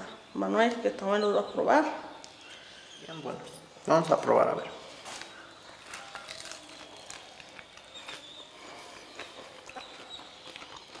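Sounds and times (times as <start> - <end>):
people chewing and crunching: 4.8 - 11.0.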